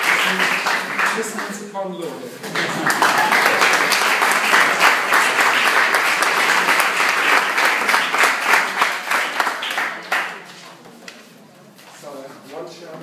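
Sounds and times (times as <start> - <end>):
audience applauding: 0.0 - 1.7, 2.5 - 10.4.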